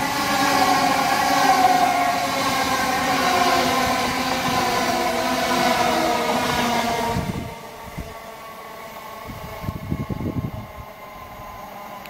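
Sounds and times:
electric train passing at speed: 0:00.0 - 0:12.0
low gusty rumbles: 0:06.4 - 0:08.2, 0:09.2 - 0:11.3.

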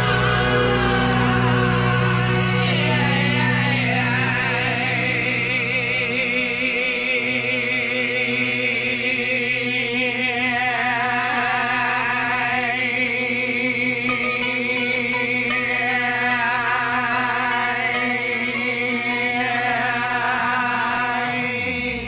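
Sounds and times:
rock band backing: 0:00.0 - 0:06.2, 0:14.0 - 0:17.0
man singing long note: 0:00.0 - 0:22.0.

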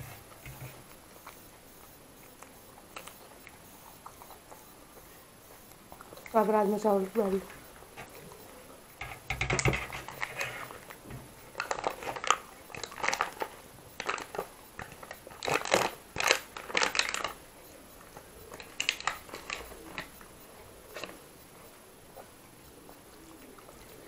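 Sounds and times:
foil container crinkling: 0:09.6 - 0:10.8, 0:11.5 - 0:17.4, 0:18.5 - 0:20.2.

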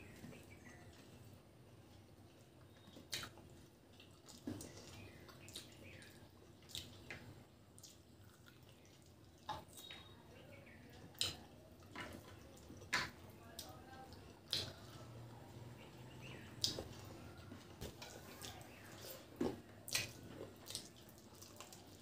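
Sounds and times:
mouth smacks and clicks chewing: 0:01.9 - 0:10.1, 0:11.0 - 0:15.3, 0:16.2 - 0:22.0
fingers squelching food: 0:02.7 - 0:10.1, 0:10.8 - 0:22.0.

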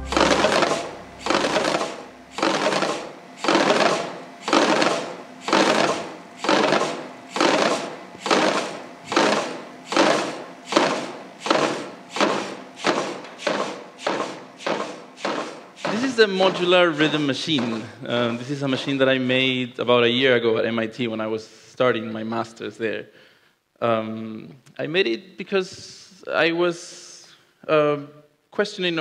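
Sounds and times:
wooden sticks striking wood: 0:10.0 - 0:16.6.

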